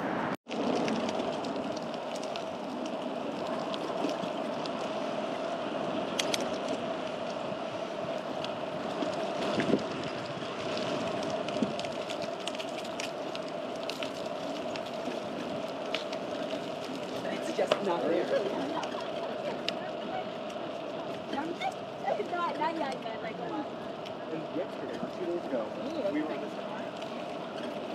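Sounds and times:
bicycle tyres on pavement: 0.0s - 27.9s
small clicks: 6.2s - 6.8s.

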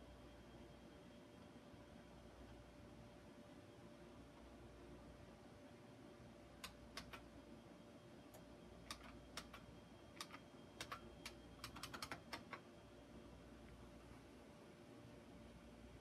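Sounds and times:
faint keyboard typing: 6.6s - 7.3s, 8.3s - 12.7s.

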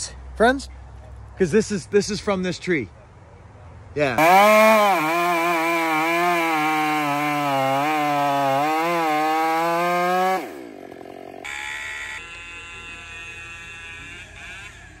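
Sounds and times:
chainsaw running: 4.2s - 15.0s.

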